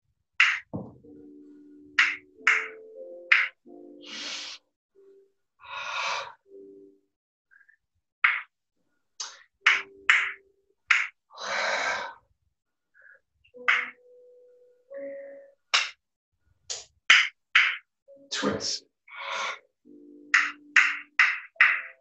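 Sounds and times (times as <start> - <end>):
long breathy exhalations: 4.0 - 4.6, 5.6 - 6.4, 11.4 - 12.2, 19.1 - 19.7.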